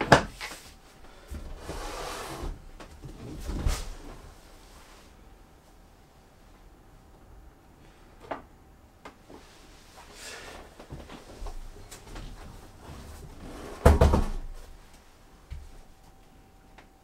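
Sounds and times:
loud clattering knock with thud: 13.8 - 14.5.

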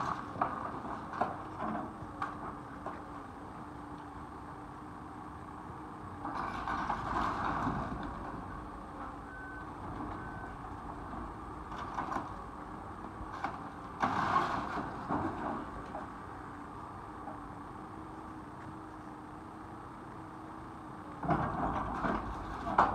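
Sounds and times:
excavator diesel engine running: 0.0 - 22.9
short alarm beeps: 9.2 - 10.6
debris crunching and crashing: 13.4 - 15.7.

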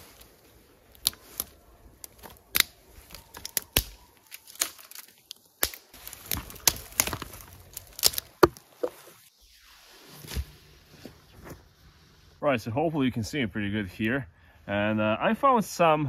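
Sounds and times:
dry twigs snapping: 0.0 - 9.0.

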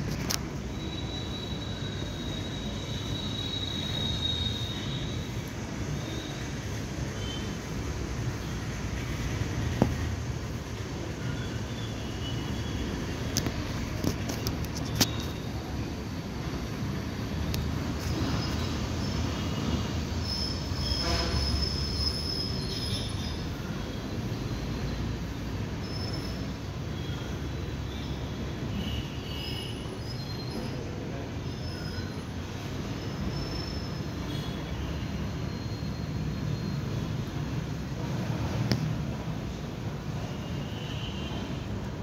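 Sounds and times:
steady high-pitched squeal: 0.0 - 9.4, 10.4 - 38.3
high whistling tone: 0.6 - 6.4.

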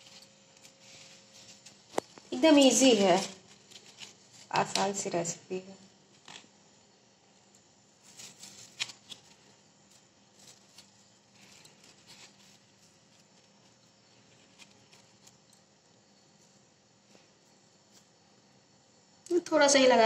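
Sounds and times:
hands rustling paper packet: 0.0 - 5.2, 8.0 - 15.7
faint steady hum: 0.0 - 20.0.

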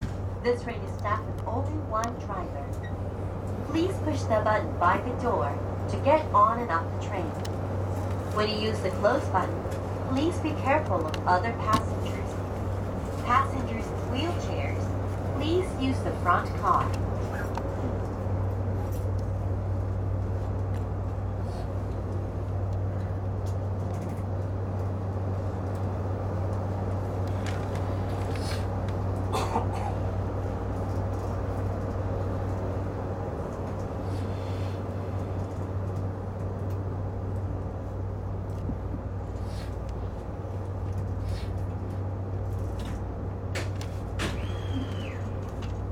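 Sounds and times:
electric train humming: 0.0 - 45.9.

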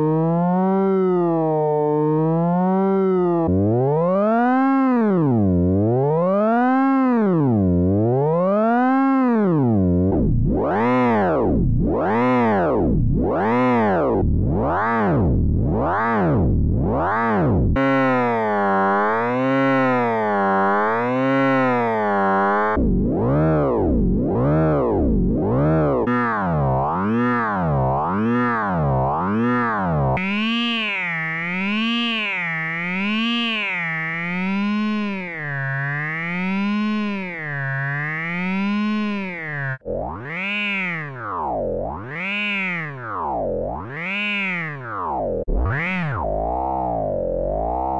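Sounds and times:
synthesized tone swooping in pitch: 29.4 - 41.2.

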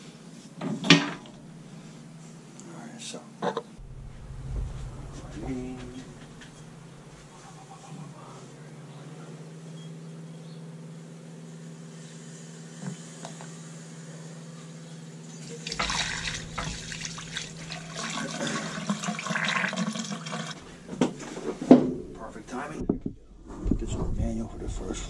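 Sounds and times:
steady low hum: 1.0 - 2.7, 3.7 - 12.1, 13.6 - 19.1, 20.5 - 25.0.

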